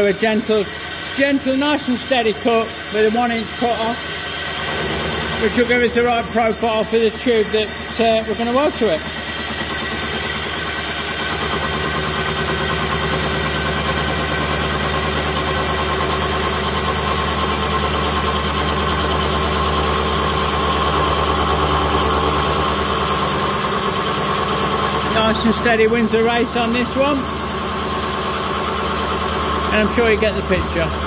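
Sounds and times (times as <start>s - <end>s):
milling machine cutting metal: 0.0s - 31.0s.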